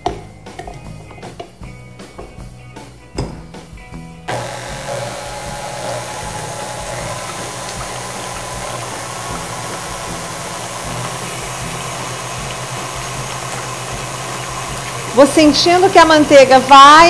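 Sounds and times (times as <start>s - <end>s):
stand mixer motor drone: 4.3s - 17.0s.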